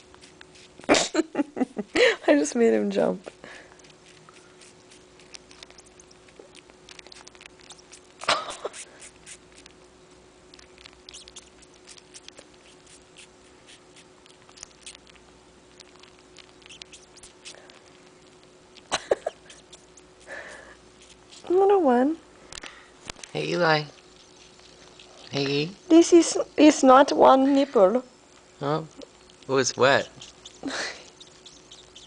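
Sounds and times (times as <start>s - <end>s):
kitten suckling wet sucking: 0.0s - 1.0s, 3.5s - 9.9s, 10.5s - 21.5s, 23.9s - 25.5s, 29.0s - 32.0s.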